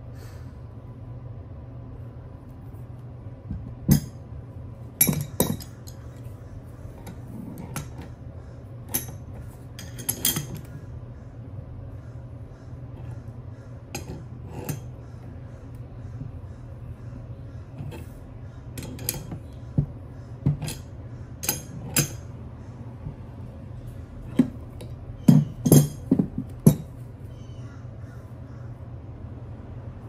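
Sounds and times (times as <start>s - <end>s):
metal tools clinking: 5.0s - 6.1s, 8.9s - 10.7s, 25.3s - 26.9s.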